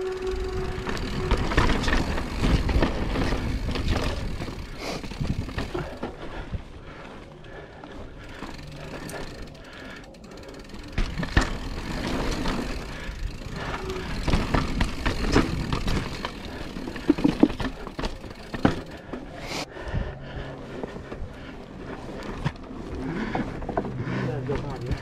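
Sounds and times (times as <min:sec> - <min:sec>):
tyre noise: 0:00.0 - 0:19.6
mountain bike rattling over trail: 0:00.0 - 0:25.0.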